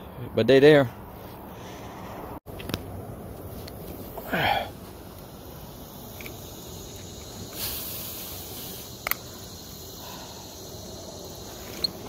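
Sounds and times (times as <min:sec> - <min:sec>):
insects chirping: 0:02.5 - 0:12.0.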